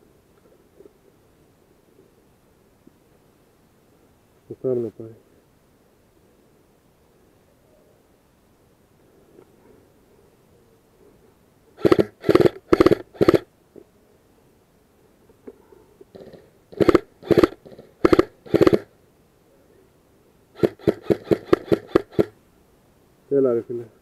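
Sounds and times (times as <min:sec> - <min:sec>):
airsoft rifle shots: 0:11.8 - 0:13.5, 0:16.7 - 0:18.9, 0:20.6 - 0:22.4.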